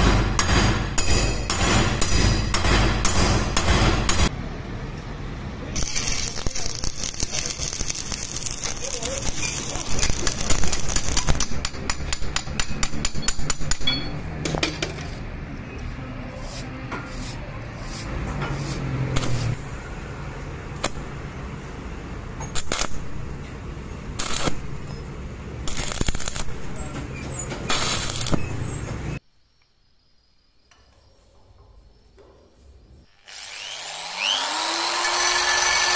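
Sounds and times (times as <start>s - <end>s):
arc welding crackling: 5.7s - 12.6s, 22.4s - 23.4s, 24.0s - 28.7s.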